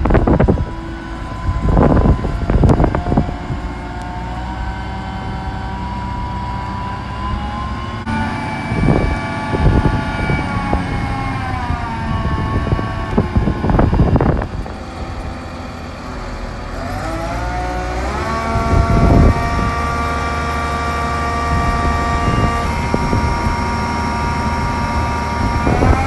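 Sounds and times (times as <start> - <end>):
diesel engine running: 0.0 - 26.0
hydraulic whine: 0.0 - 26.0.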